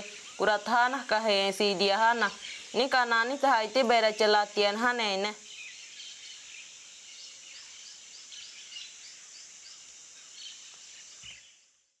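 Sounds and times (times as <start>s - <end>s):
high insect drone: 0.0s - 12.0s.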